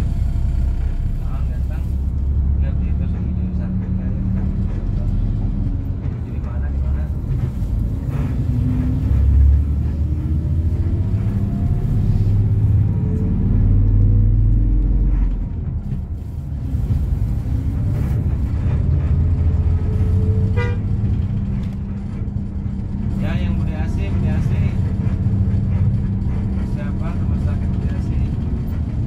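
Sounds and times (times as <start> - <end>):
vehicle engine and road rumble: 0.0 - 29.0
car horn toot: 20.6 - 20.8.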